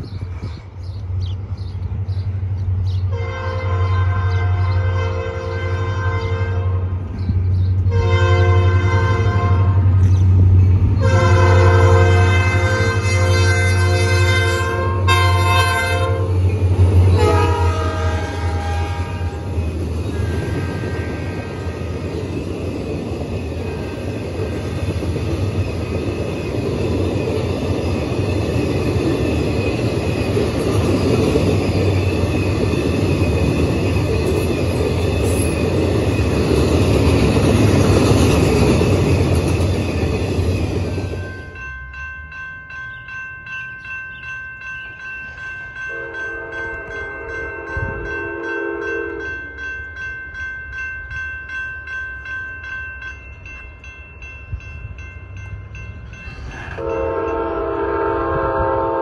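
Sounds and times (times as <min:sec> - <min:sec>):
crossing bell ringing: 0:02.9 - 0:59.0
locomotive air horn: 0:03.1 - 0:06.9, 0:07.9 - 0:10.0, 0:11.0 - 0:16.4, 0:17.2 - 0:19.5, 0:20.1 - 0:21.4, 0:45.9 - 0:49.4, 0:56.6 - 0:59.0
train wheels rolling: 0:06.9 - 0:58.0.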